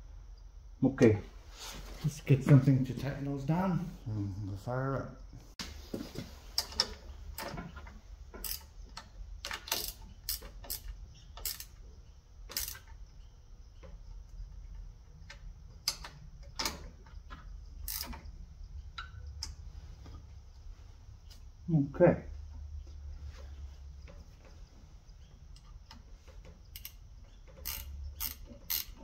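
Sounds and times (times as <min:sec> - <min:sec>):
faint low hum: 0:00.0 - 0:29.0
wrench clicking on bolts: 0:08.4 - 0:11.8, 0:12.5 - 0:13.0, 0:17.8 - 0:18.2, 0:26.7 - 0:29.0.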